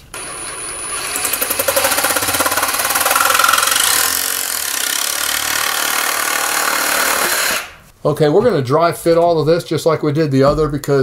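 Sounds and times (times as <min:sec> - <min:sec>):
reciprocating saw cutting pipe: 0:00.1 - 0:07.8.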